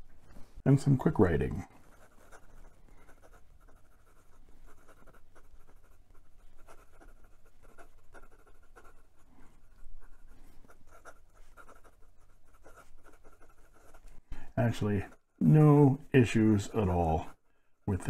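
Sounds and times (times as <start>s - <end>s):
pen nib scratching paper: 1.6s - 14.2s.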